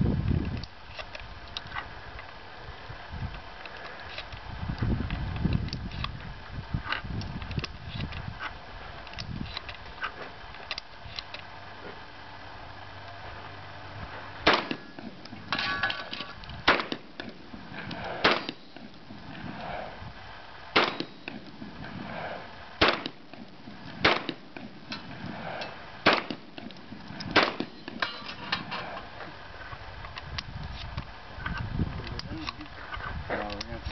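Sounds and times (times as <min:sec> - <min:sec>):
shotgun firing: 0:14.4 - 0:18.9, 0:20.7 - 0:21.4, 0:22.0 - 0:26.6, 0:27.3 - 0:28.2.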